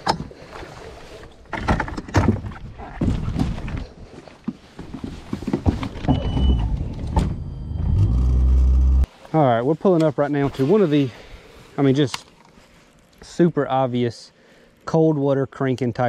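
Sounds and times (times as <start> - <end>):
gear handled on a boat: 0.0 - 7.5, 9.2 - 13.4
knocks and clunks of trolling motor: 1.4 - 9.1
short high beep: 7.4 - 9.0.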